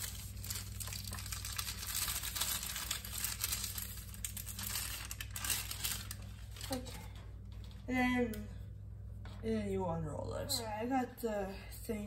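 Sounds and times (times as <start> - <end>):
plastic wrapper crinkling: 0.0 - 7.8
steady low hum: 0.0 - 12.0.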